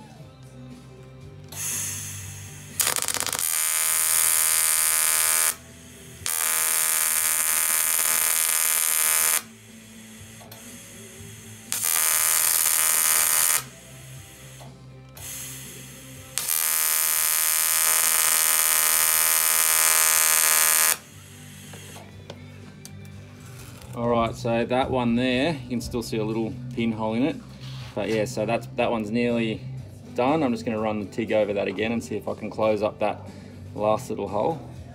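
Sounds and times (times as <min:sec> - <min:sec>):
welding arc buzzing: 0:01.5 - 0:22.1.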